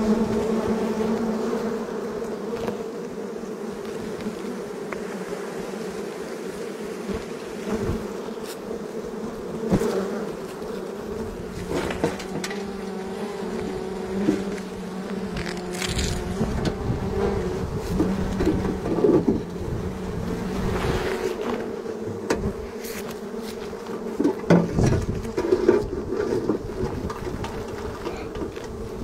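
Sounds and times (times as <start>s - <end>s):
honeybees buzzing: 0.0s - 29.0s.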